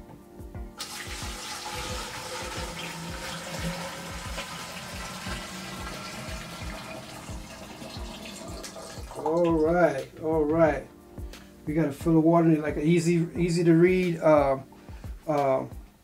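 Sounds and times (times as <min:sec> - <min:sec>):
water pouring from a jug: 0:00.8 - 0:09.7.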